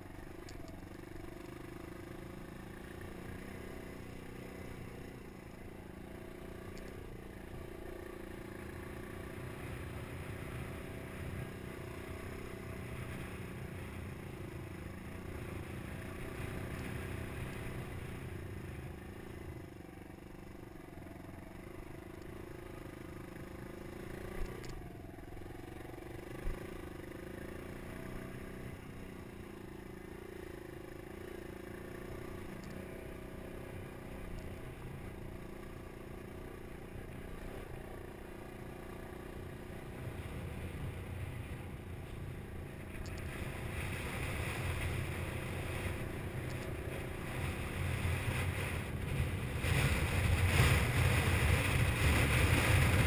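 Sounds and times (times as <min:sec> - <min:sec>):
dirt bike engine running: 0:00.0 - 0:53.0.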